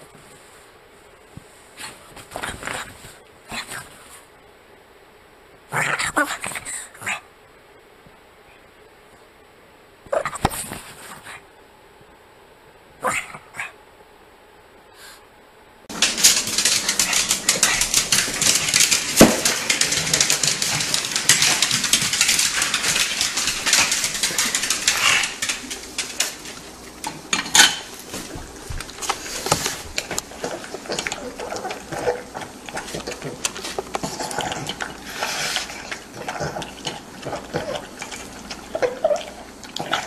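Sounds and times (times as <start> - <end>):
dog eating from metal bowl: 15.9 - 40.0.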